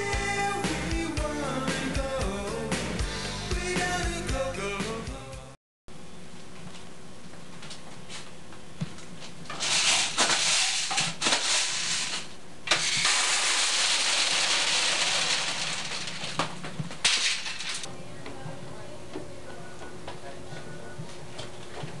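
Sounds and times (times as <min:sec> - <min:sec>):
candy pouring from dispenser: 0:09.6 - 0:16.5.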